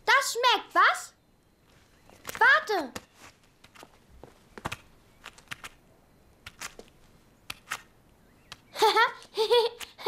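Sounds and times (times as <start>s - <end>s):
soft footstep taps: 3.0s - 5.4s.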